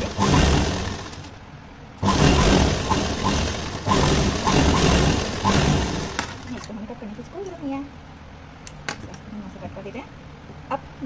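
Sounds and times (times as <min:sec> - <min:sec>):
electric sewing machine stitching: 0:00.0 - 0:01.4, 0:02.0 - 0:06.6.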